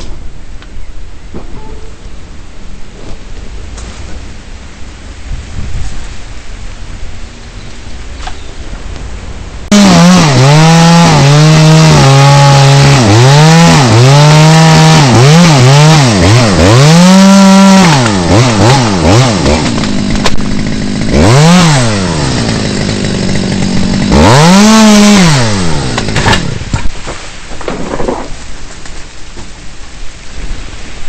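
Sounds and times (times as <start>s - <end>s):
chainsaw revving: 9.7s - 26.8s.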